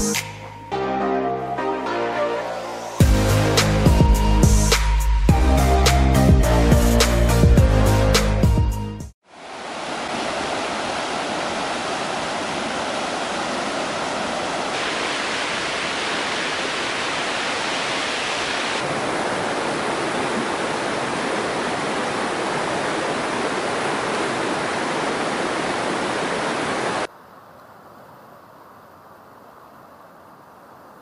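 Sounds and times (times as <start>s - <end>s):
waterfall rushing: 9.3s - 27.1s.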